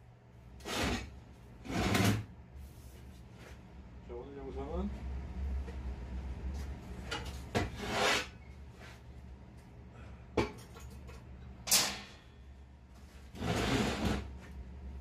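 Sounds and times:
low steady hum: 0:00.0 - 0:15.0
scraping on steel workbench: 0:00.6 - 0:02.3, 0:07.0 - 0:09.0, 0:13.1 - 0:14.5.

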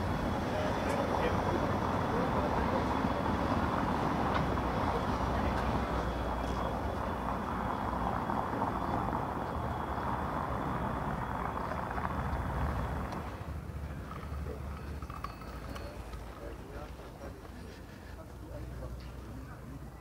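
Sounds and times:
vehicle passing close by: 0:00.0 - 0:15.1
faint high steady whine: 0:00.0 - 0:20.0
street traffic: 0:00.0 - 0:20.0.

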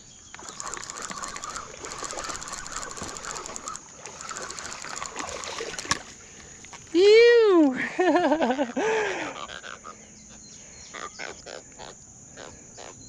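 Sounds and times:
high insect drone: 0:00.0 - 0:13.0
fishing reel ticking: 0:00.3 - 0:06.8.

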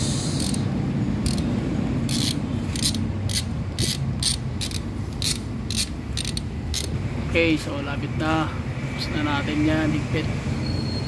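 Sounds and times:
hand ratchet clicking: 0:00.4 - 0:07.0.

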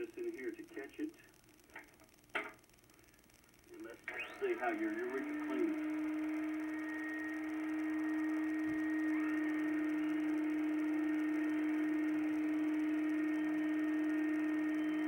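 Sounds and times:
vacuum cleaner humming: 0:04.2 - 0:15.0.

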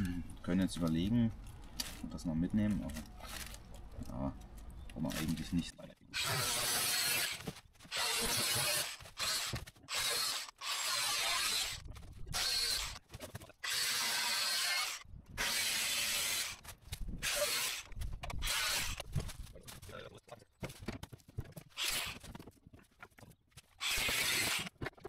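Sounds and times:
saw rasping through sheet metal: 0:06.2 - 0:13.0.

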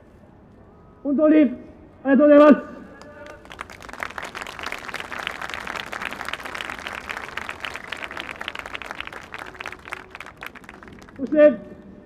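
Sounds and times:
stadium crowd applauding: 0:03.0 - 0:11.8.

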